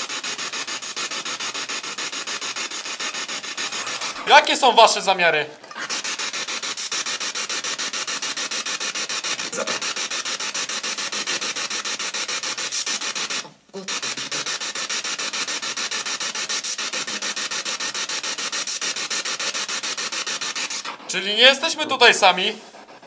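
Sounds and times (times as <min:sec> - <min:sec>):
pulsing radio static hiss: 0:03.0 - 0:05.3.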